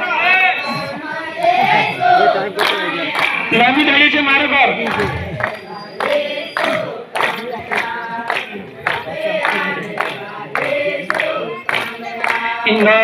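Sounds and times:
group singing: 0.0s - 3.7s, 4.7s - 13.0s
hand claps: 2.6s - 3.5s, 4.8s - 13.0s.

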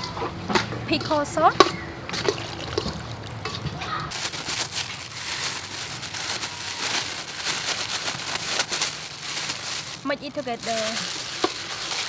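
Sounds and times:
plastic gloves crinkling: 4.1s - 12.0s.

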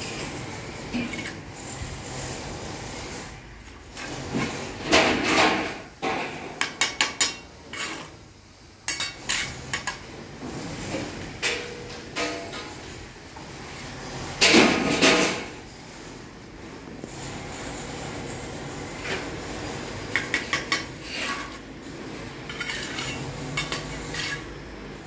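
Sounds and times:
trowel scraping mortar: 0.1s - 8.2s, 8.9s - 11.6s, 17.0s - 25.0s.

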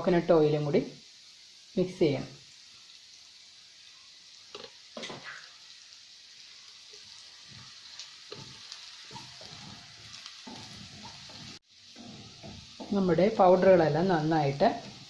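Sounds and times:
onions sizzling in oil: 0.0s - 15.0s.

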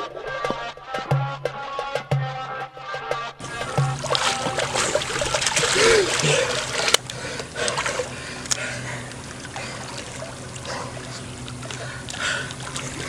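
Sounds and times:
pool water lapping and trickling: 3.4s - 13.0s
small water splashes: 3.4s - 13.0s.

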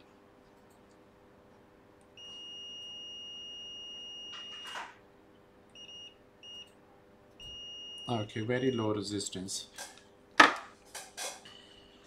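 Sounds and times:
multimeter beeping: 2.2s - 5.0s, 5.8s - 6.7s, 7.4s - 8.9s.

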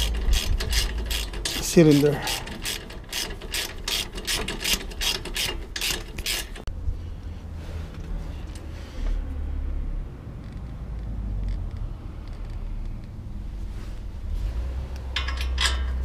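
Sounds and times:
ratchet wrench clicking: 0.0s - 6.7s, 15.2s - 16.0s
low steady rumble: 0.0s - 16.0s.

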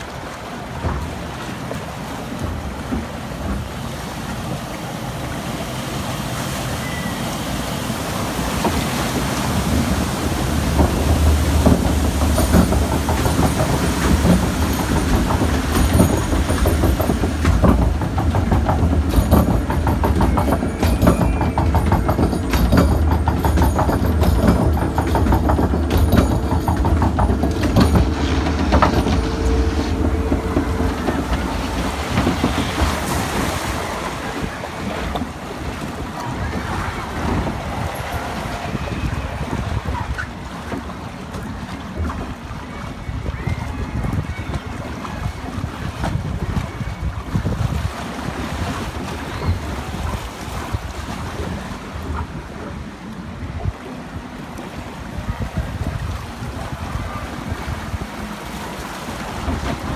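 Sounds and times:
water rushing: 0.0s - 59.9s
lift conveyor clattering: 0.5s - 42.8s
low drive hum: 7.7s - 35.6s
wind rushing: 25.8s - 40.2s.

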